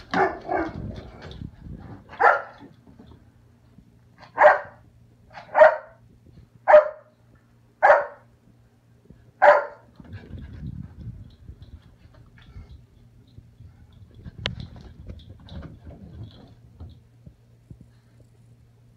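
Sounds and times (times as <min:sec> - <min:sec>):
puppy barking: 0:00.1 - 0:00.8, 0:02.2 - 0:02.6, 0:04.3 - 0:04.8, 0:05.4 - 0:06.0, 0:06.7 - 0:07.1, 0:07.8 - 0:08.3, 0:09.4 - 0:09.9.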